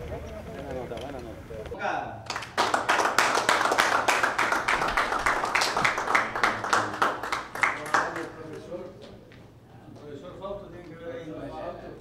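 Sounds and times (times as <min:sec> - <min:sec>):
people clapping: 0:02.2 - 0:08.8.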